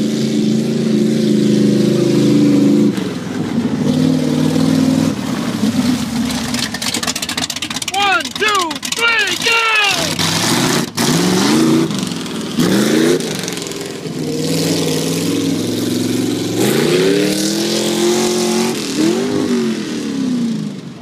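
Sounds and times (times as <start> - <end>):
truck engine revving: 0.0 - 21.0
tyres spinning in dirt: 5.4 - 11.2.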